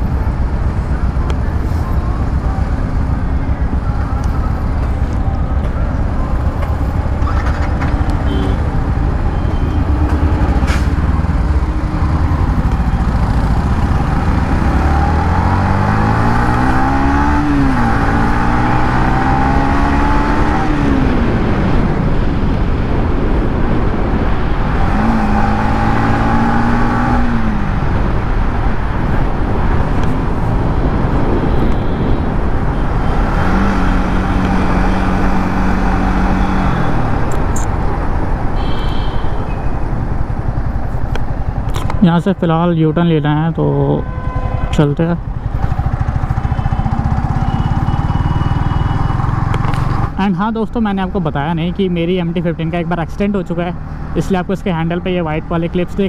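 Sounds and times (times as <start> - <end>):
wind and road noise: 0.0 - 56.0
motorcycle engine accelerating: 2.0 - 38.0, 45.1 - 50.2.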